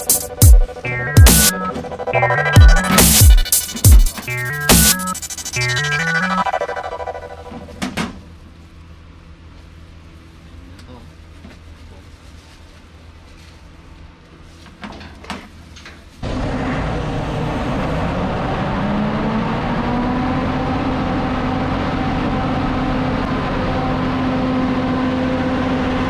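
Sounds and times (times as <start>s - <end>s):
diesel generator engine running: 16.2s - 26.0s.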